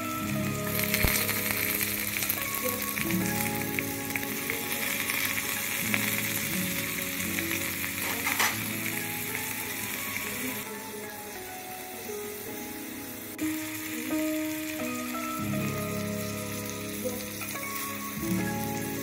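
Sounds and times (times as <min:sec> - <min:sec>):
background music with held notes: 0:00.0 - 0:19.0
oil sizzling in a pot: 0:00.0 - 0:19.0.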